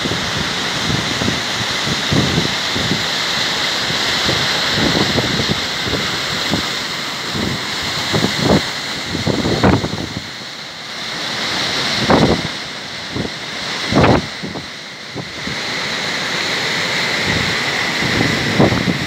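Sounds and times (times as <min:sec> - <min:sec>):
waterfall and stream rushing: 0:00.0 - 0:19.0
wind buffeting microphone: 0:07.3 - 0:10.3, 0:17.2 - 0:19.0.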